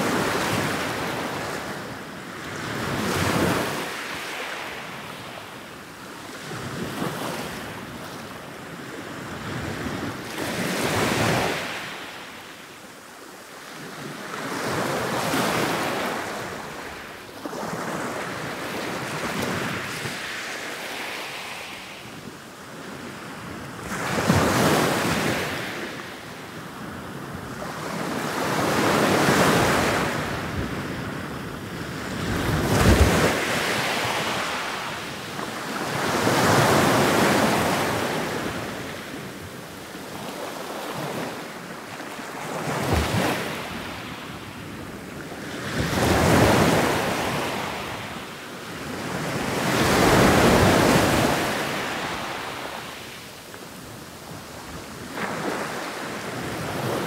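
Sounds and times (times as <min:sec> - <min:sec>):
ocean waves crashing: 0:32.2 - 0:39.4, 0:42.2 - 0:44.2, 0:48.8 - 0:53.2.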